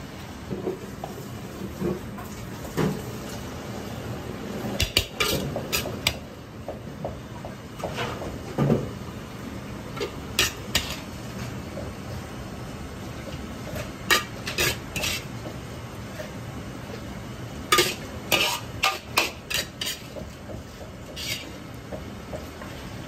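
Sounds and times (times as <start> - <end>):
steady kitchen hum: 0.0 - 23.0.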